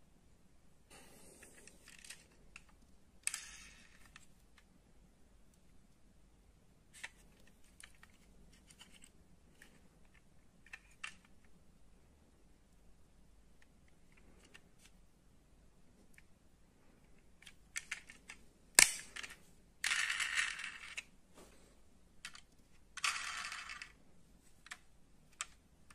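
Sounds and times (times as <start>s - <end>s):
model car clicking and rattling: 17.4s - 21.1s, 22.2s - 24.0s.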